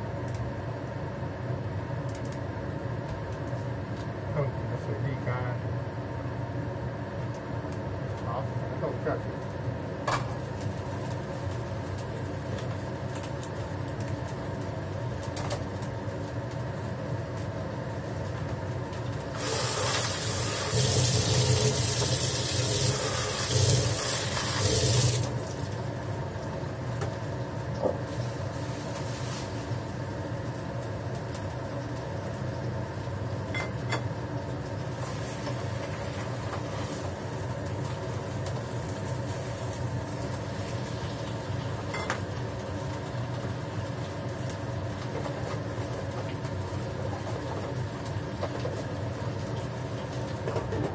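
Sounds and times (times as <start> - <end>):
steady mechanical hum: 0.0 - 50.9
kitchen tap running: 19.3 - 25.8.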